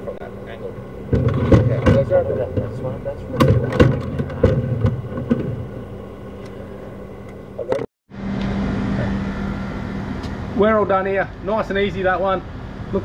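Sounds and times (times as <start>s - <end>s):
steady machine hum: 0.0s - 13.0s
camera head knocking and clattering: 1.1s - 2.7s, 3.4s - 5.6s.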